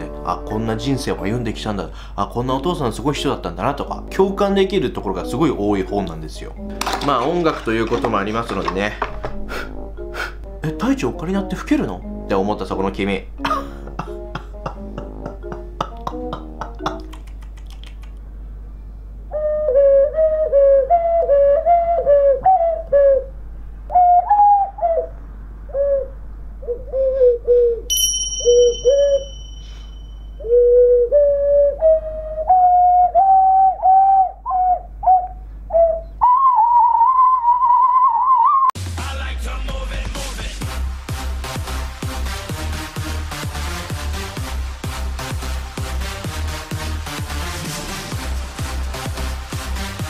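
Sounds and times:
ocarina notes wavering: 0:27.9 - 0:38.7.

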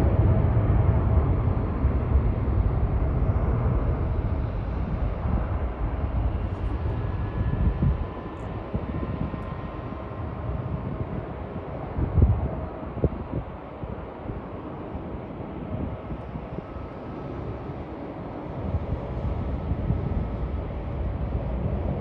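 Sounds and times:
jet engines roaring at takeoff: 0:00.0 - 0:22.0.

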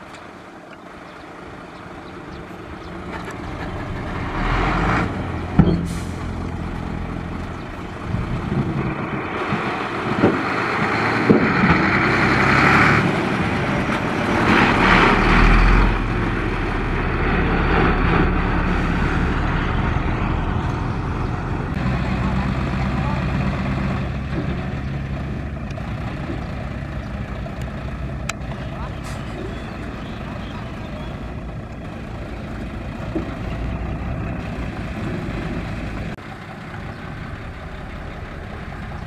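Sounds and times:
diesel truck engine under load: 0:00.0 - 0:39.0.

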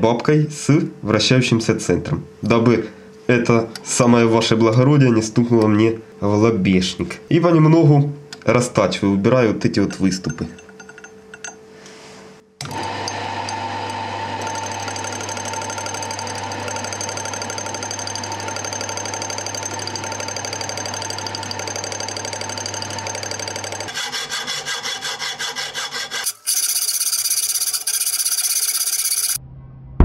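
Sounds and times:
lathe motor humming: 0:12.6 - 0:24.7, 0:26.2 - 0:29.4
cutting tool boring metal: 0:12.6 - 0:29.4
rasping strokes: 0:23.9 - 0:29.4.

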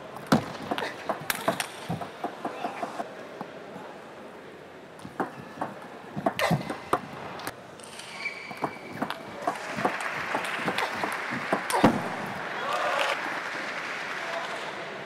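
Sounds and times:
crowd noise: 0:00.0 - 0:15.0
table tennis ball clicking: 0:00.3 - 0:03.0, 0:08.5 - 0:12.0
shoe squeak: 0:05.0 - 0:07.1, 0:07.9 - 0:11.9.

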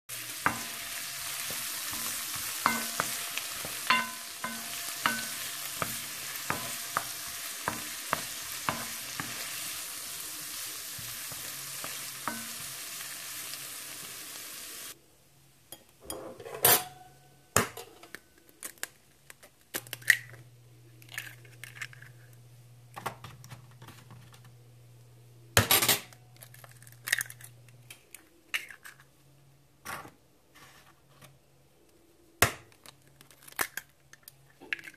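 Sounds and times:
vegetables sizzling in a skillet: 0:00.1 - 0:15.0
wooden spoon scraping a pan: 0:00.2 - 0:12.7
eggs cracked into a bowl: 0:17.6 - 0:22.4, 0:26.1 - 0:29.1, 0:32.4 - 0:34.9.

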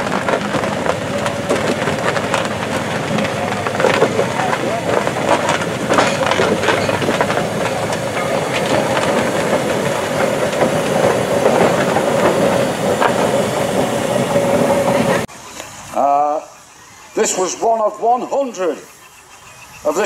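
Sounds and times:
road roller running gear clatter: 0:00.0 - 0:15.8
steam hissing: 0:00.0 - 0:20.0
steady low tone: 0:03.1 - 0:13.0.

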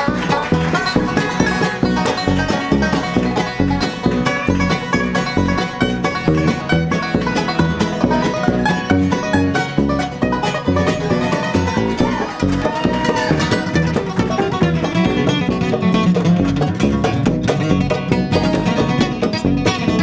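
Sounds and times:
bluegrass band playing: 0:00.0 - 0:20.0.

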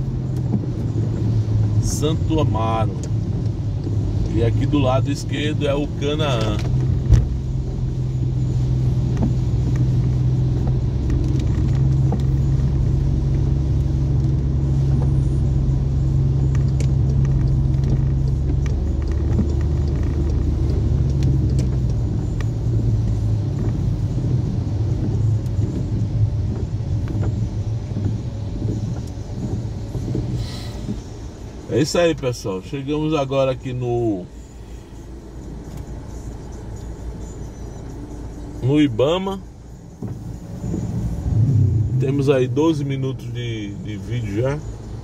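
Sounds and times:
car engine drone: 0:00.0 - 0:45.0
road noise: 0:00.0 - 0:45.0.

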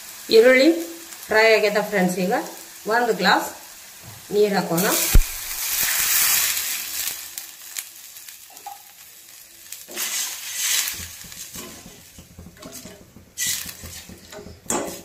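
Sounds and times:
water poured into sizzling oil: 0:04.8 - 0:14.1
metal spoon scraping a pot: 0:09.9 - 0:15.0.

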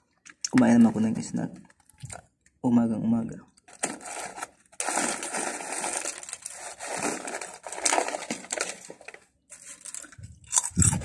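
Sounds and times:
foil snack bag rustling: 0:03.7 - 0:11.0.

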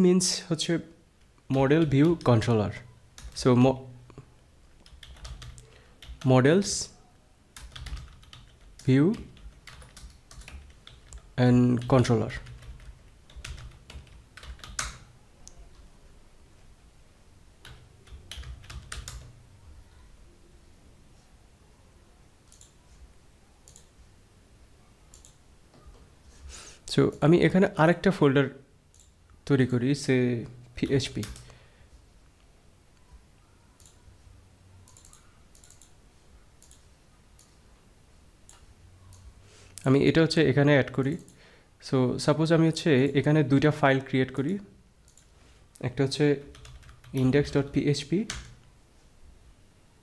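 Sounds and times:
faint low hum: 0:00.0 - 0:50.0
computer keyboard keystrokes: 0:04.8 - 0:06.3, 0:07.6 - 0:15.1, 0:17.6 - 0:19.4, 0:22.5 - 0:22.8, 0:23.6 - 0:23.9, 0:25.1 - 0:25.4, 0:31.1 - 0:31.5, 0:34.9 - 0:36.0, 0:36.6 - 0:36.8, 0:46.5 - 0:47.3, 0:48.3 - 0:48.6
computer mouse clicks: 0:22.4 - 0:22.8, 0:23.6 - 0:23.9, 0:25.1 - 0:26.0, 0:28.9 - 0:29.1, 0:33.8 - 0:34.0, 0:34.8 - 0:36.0, 0:36.6 - 0:37.6, 0:38.4 - 0:39.3, 0:41.0 - 0:41.4, 0:44.4 - 0:45.3.

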